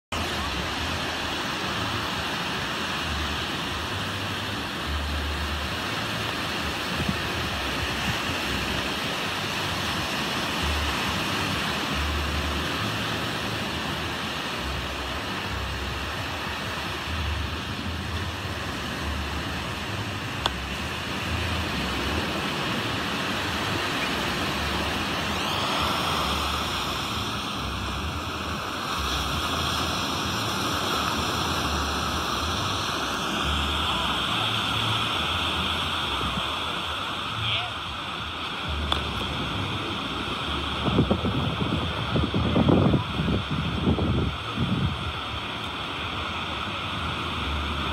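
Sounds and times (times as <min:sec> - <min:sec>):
waves breaking on beach: 0:00.0 - 0:47.9
wind rumble on microphone: 0:00.1 - 0:47.9.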